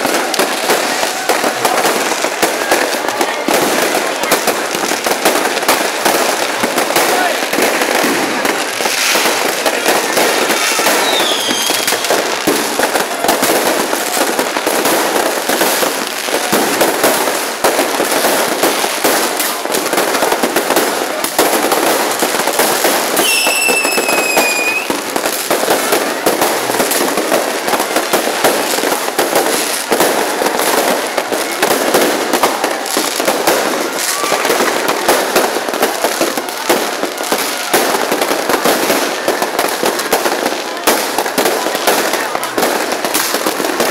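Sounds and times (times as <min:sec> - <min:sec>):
fireworks crackling and popping: 0:00.0 - 0:43.9
falling firework whistles: 0:10.4 - 0:12.2, 0:23.2 - 0:25.0.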